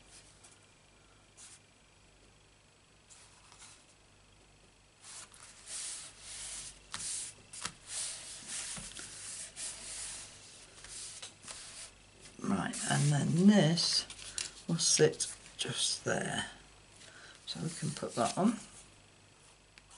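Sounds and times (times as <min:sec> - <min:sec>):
dry paper swishes: 0:05.0 - 0:11.9, 0:17.7 - 0:18.7.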